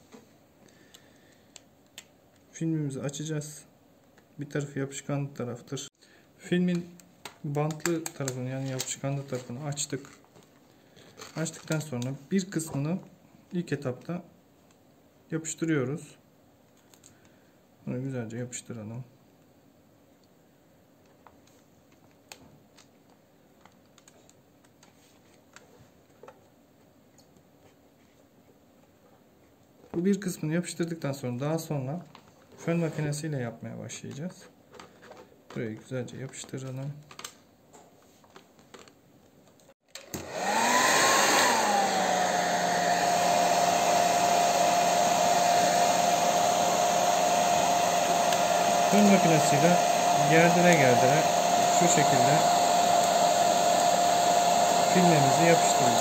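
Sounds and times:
hair dryer blowing: 0:40.0 - 0:56.0.

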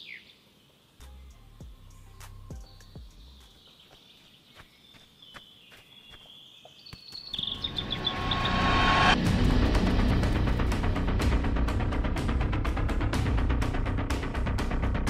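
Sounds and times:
rush of noise: 0:07.5 - 0:11.5.

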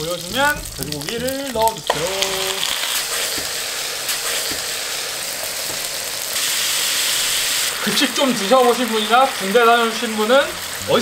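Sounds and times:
pork sizzling in hot oil: 0:00.0 - 0:11.0.

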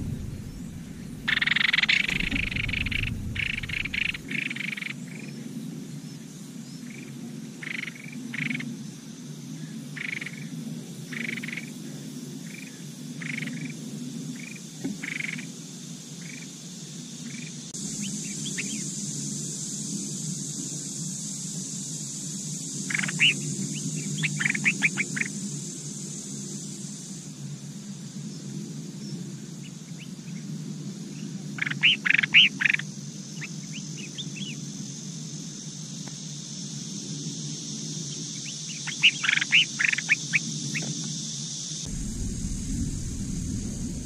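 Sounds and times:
nestling bird begging calls: 0:00.0 - 0:04.2
steady low hum: 0:00.0 - 0:04.4, 0:41.9 - 0:44.0.

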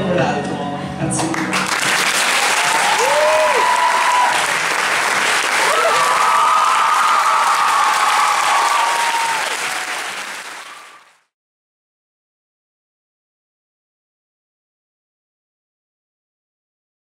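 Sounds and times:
audience applauding: 0:01.3 - 0:11.3
people cheering: 0:01.7 - 0:11.2.

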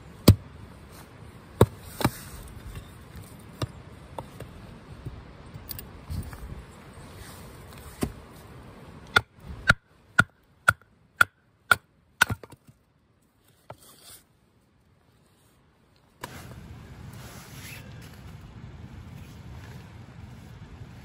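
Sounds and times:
hatchet chopping log: 0:00.2 - 0:00.4, 0:09.1 - 0:12.7.

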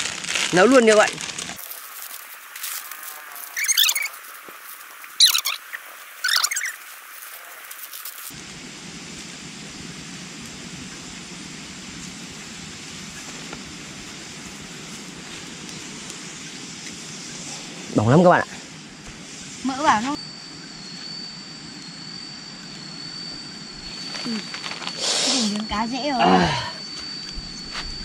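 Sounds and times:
plastic packet crinkling: 0:00.0 - 0:05.5
steady background hiss: 0:00.0 - 0:28.0.

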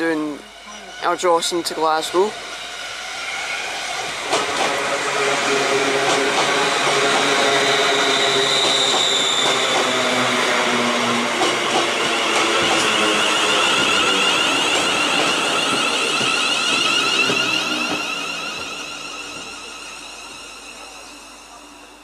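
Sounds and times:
electric train passing: 0:00.0 - 0:22.0.

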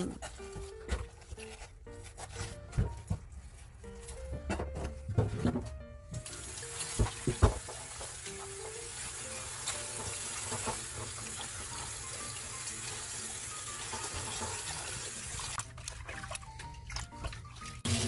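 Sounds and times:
leaves rinsed by hand: 0:06.2 - 0:18.0
tap water running into basin: 0:06.2 - 0:18.0.

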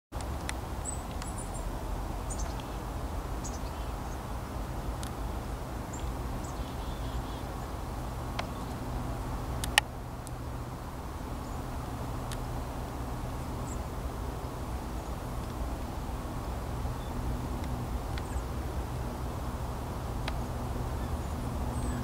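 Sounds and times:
low background rumble: 0:00.2 - 0:22.0
bird chirps: 0:02.3 - 0:02.8, 0:03.4 - 0:04.2, 0:05.9 - 0:07.5, 0:21.0 - 0:22.0
sharp click: 0:09.6 - 0:10.4.

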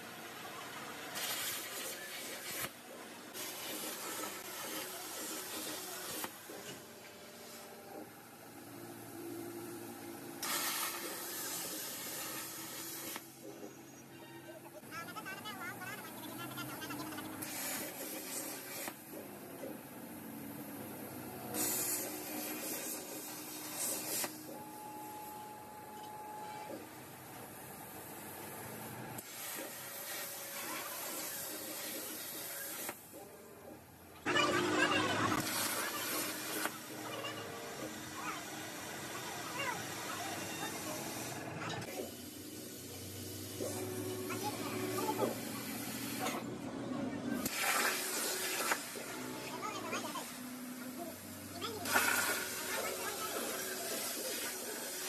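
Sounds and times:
plasma cutter torch hissing: 0:01.2 - 0:02.8, 0:03.4 - 0:06.3, 0:10.4 - 0:13.4, 0:17.0 - 0:19.0, 0:21.5 - 0:24.4, 0:29.2 - 0:33.0, 0:35.3 - 0:36.9, 0:37.9 - 0:46.3, 0:47.4 - 0:55.0.

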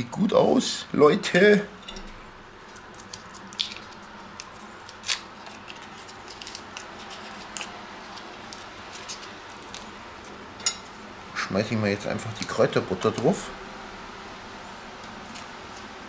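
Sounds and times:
foil wrapper crinkling: 0:02.7 - 0:10.4.

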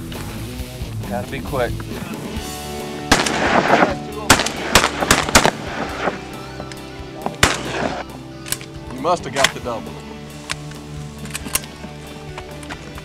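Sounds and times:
background music: 0:00.0 - 0:13.0
shotguns firing: 0:03.0 - 0:08.8.

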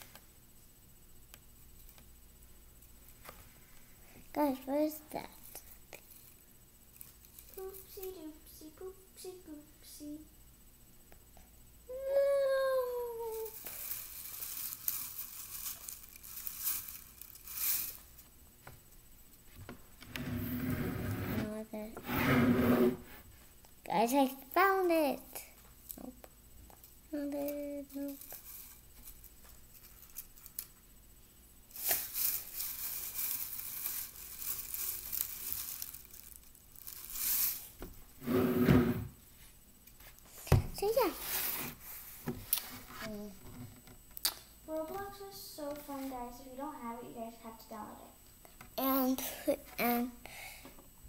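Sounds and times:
child humming: 0:11.9 - 0:13.6
crinkling and rustling: 0:13.3 - 0:18.3, 0:26.7 - 0:30.8, 0:31.7 - 0:38.0.

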